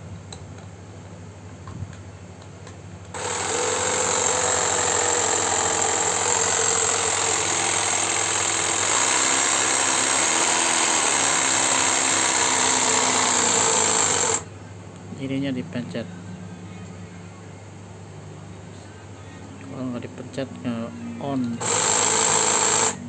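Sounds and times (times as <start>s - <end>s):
cordless jigsaw running: 3.1s - 14.5s, 21.6s - 23.0s.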